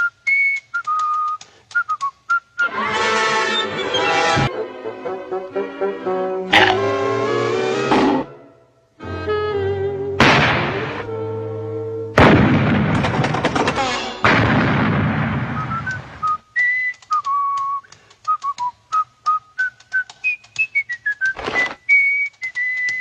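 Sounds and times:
whistled tune: 0.0s - 2.8s, 3.5s - 4.4s, 15.5s - 23.0s
cartoon bomb explosion: 10.2s - 11.1s, 12.2s - 16.2s.

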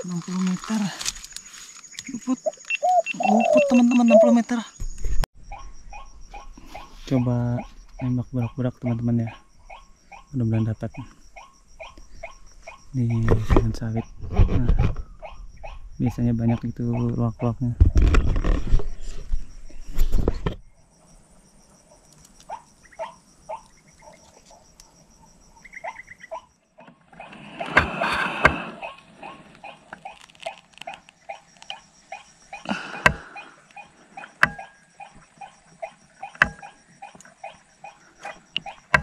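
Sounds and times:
handling rustle: 0.0s - 2.8s
waterhens croaking: 0.0s - 4.7s, 5.5s - 14.1s, 21.9s - 39.0s.

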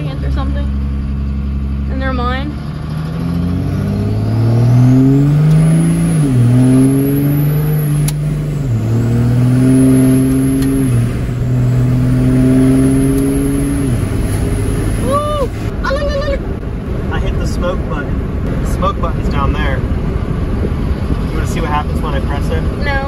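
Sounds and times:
diesel engine accelerating: 0.0s - 23.0s.

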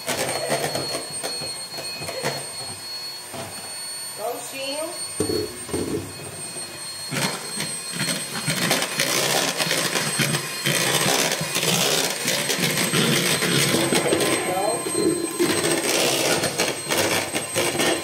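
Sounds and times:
electric hand mixer rattling: 7.1s - 18.0s.

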